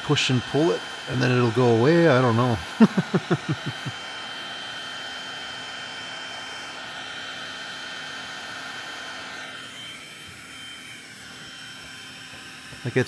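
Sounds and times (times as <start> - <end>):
heat gun fan blowing: 0.0 - 13.0.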